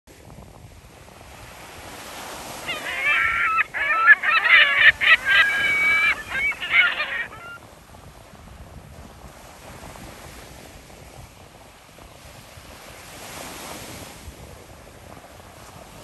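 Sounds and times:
surf and wind hiss: 0:00.2 - 0:16.0
gulls calling: 0:02.5 - 0:07.6.

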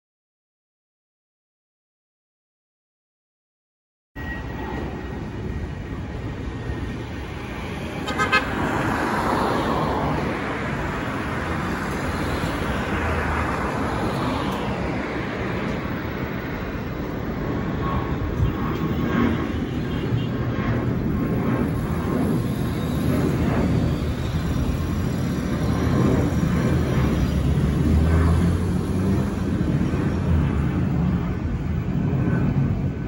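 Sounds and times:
horn toot: 0:08.0 - 0:08.6
vehicle passing: 0:25.5 - 0:31.2.

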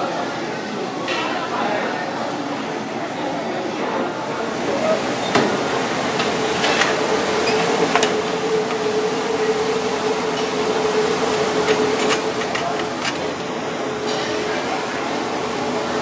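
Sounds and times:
kitchen equipment hum: 0:04.2 - 0:16.0.

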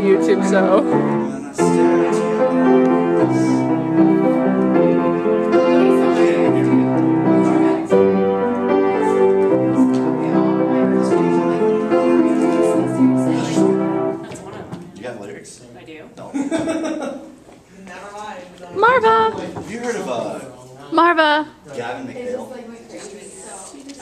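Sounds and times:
piano playing: 0:00.0 - 0:14.7.

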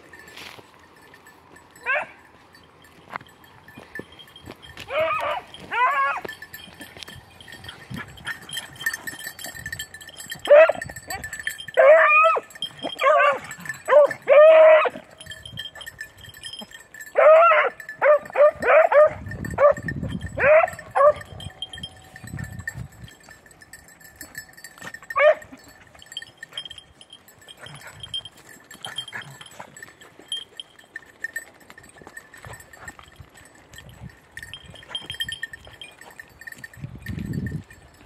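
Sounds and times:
small bell tinkling: 0:00.0 - 0:38.0
dogs baying: 0:04.8 - 0:21.8, 0:24.8 - 0:26.8, 0:27.4 - 0:30.8.

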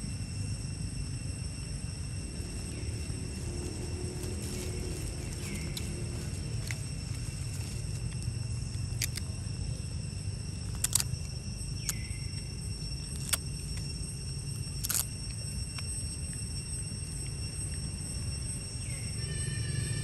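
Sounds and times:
high-pitched whine: 0:00.0 - 0:20.0
sharp clicks or crackles: 0:10.8 - 0:11.1.

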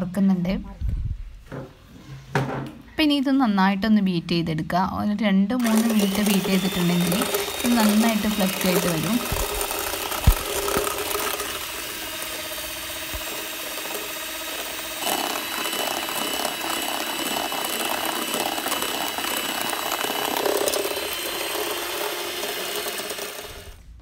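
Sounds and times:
electric hand mixer running: 0:05.6 - 0:24.0.

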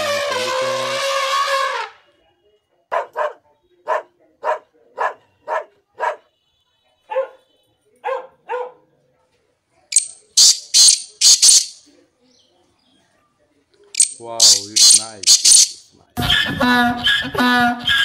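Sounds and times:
elephant trumpeting: 0:00.0 - 0:01.9
dog barking: 0:02.9 - 0:06.3, 0:07.1 - 0:08.9
very high-pitched calls: 0:09.9 - 0:11.9, 0:14.0 - 0:15.9.

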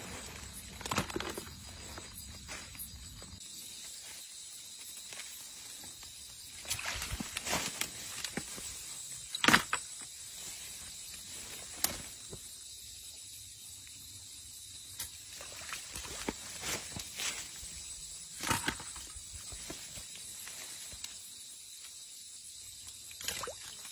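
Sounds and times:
rustling in grass and mud: 0:00.0 - 0:12.5, 0:15.1 - 0:21.2.

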